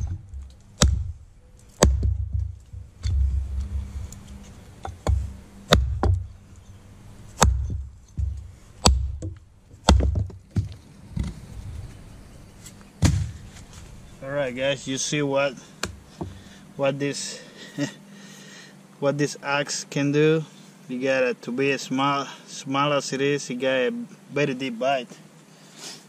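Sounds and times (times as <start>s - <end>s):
hatchet chopping log: 0.0s - 3.3s, 4.8s - 6.3s, 7.4s - 11.3s, 13.0s - 13.4s, 15.8s - 16.4s.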